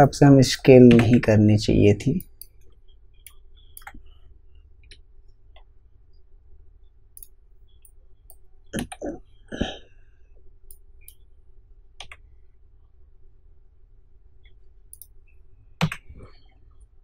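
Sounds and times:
faint low hum: 0:00.0 - 0:17.0
mouse and keyboard clicks: 0:03.2 - 0:04.0.

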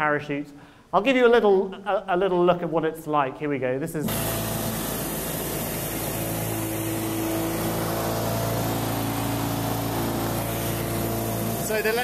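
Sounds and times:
electric motor and propeller drone: 0:04.1 - 0:12.0.

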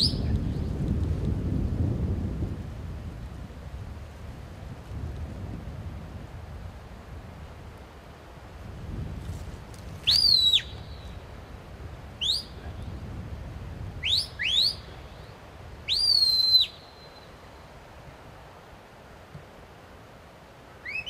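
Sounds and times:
shepherd's whistle: 0:10.0 - 0:11.0, 0:12.2 - 0:12.6, 0:14.0 - 0:14.9, 0:15.9 - 0:17.1.

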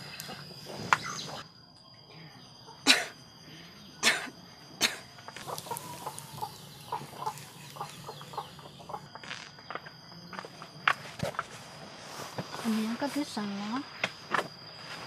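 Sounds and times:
chickens clucking: 0:00.1 - 0:01.5, 0:05.0 - 0:09.4.

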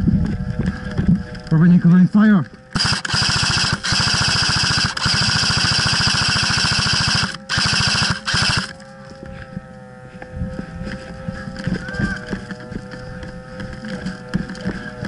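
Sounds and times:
airsoft machine gun bursts: 0:02.7 - 0:08.8.

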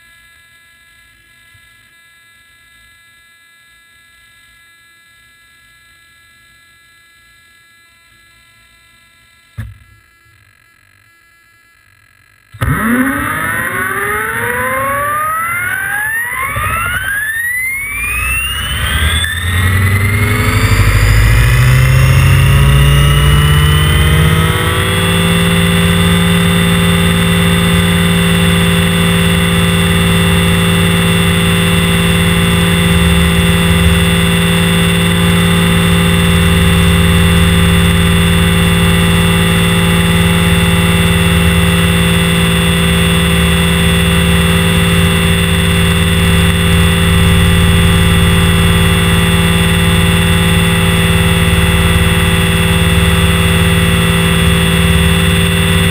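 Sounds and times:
helicopter motor and rotor whine: 0:12.5 - 0:55.9.

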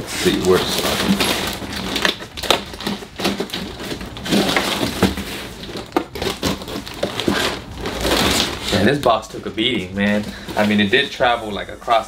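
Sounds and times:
cardboard scraping: 0:00.0 - 0:12.0
knife cutting packing tape: 0:00.2 - 0:08.8.

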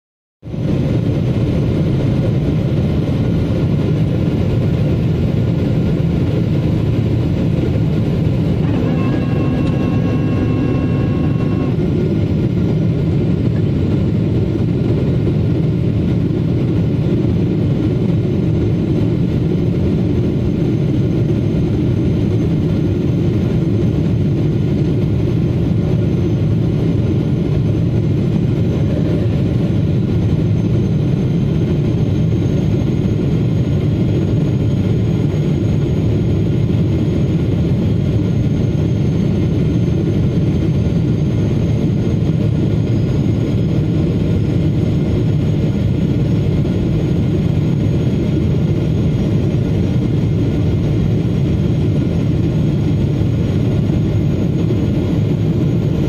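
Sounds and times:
jet engine cabin rumble: 0:00.5 - 0:56.0.

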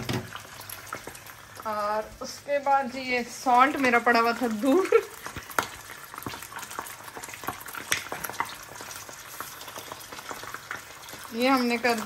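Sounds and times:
oil pops and crackles: 0:00.0 - 0:01.7, 0:04.7 - 0:12.0
sauce sizzling in a pan: 0:00.0 - 0:12.0.

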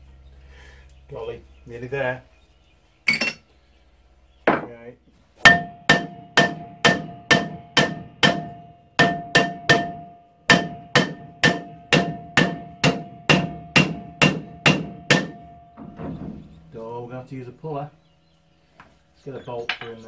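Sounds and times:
hammer striking ringing brake drum: 0:05.4 - 0:16.8.

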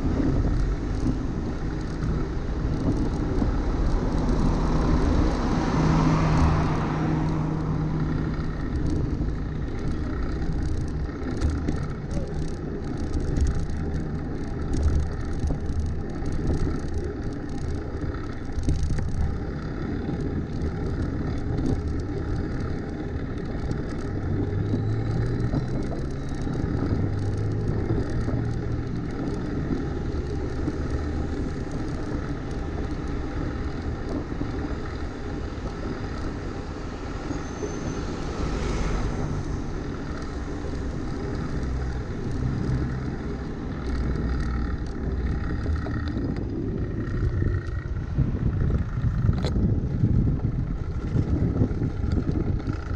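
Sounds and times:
passing car engine hum: 0:00.0 - 0:12.2, 0:24.2 - 0:52.7
bicycle tyres on wet road: 0:00.0 - 0:52.9
wind on microphone: 0:00.0 - 0:52.9
rattling clicks: 0:06.3 - 0:37.4, 0:39.1 - 0:52.9.

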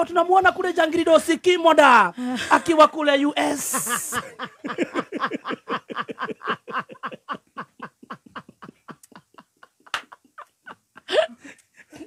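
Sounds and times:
man laughing hard: 0:03.4 - 0:12.0.

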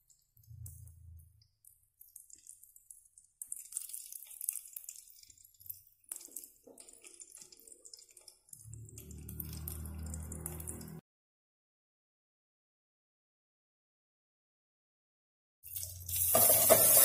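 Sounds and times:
low hum: 0:08.6 - 0:11.0
seeds sizzling in hot oil: 0:15.7 - 0:17.0.

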